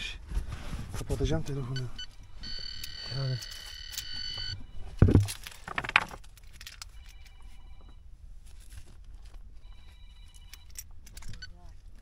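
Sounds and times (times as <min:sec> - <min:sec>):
faint phone ringtone: 0:01.6 - 0:05.3, 0:06.9 - 0:08.1, 0:09.6 - 0:11.8
rock knocking: 0:05.0 - 0:06.2.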